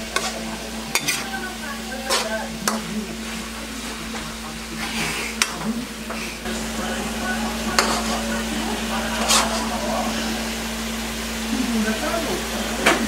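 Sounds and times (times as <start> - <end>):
spoon clanking on pan: 0.0 - 1.4, 7.7 - 8.4
metal spoon scraping wok: 0.0 - 4.0, 4.8 - 6.5, 7.5 - 10.4
soft frying sizzle: 0.0 - 13.0.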